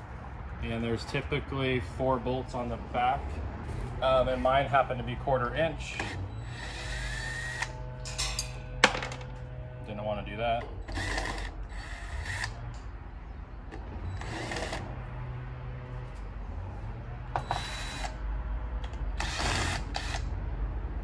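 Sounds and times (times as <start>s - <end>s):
cordless drill running: 6.1s - 7.8s, 10.8s - 12.6s, 14.2s - 14.8s, 17.4s - 18.2s, 19.2s - 20.3s.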